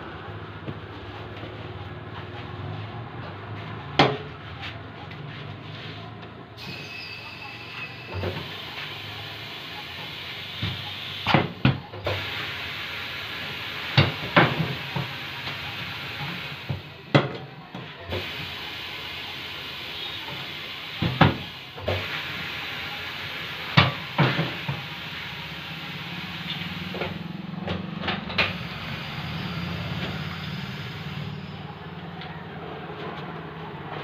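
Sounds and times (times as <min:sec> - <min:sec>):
steady air hiss: 0:28.6 - 0:31.7.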